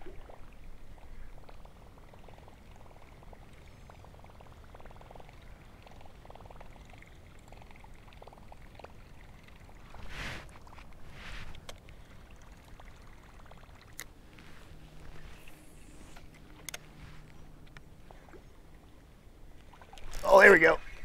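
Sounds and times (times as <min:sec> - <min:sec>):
lure churning water surface: 0:00.0 - 0:18.9
short rushes of noise: 0:09.8 - 0:11.6.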